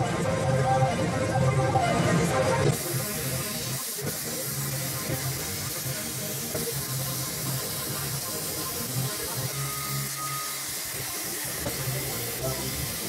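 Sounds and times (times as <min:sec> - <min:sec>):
plasma cutter hissing: 0:02.7 - 0:13.0.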